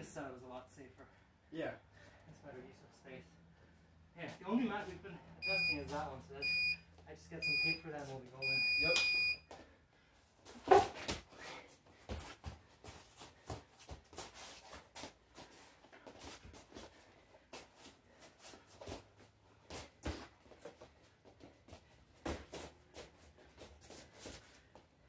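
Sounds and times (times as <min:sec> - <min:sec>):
shoes and bodies thudding on mat: 0:10.5 - 0:16.9, 0:17.5 - 0:24.6.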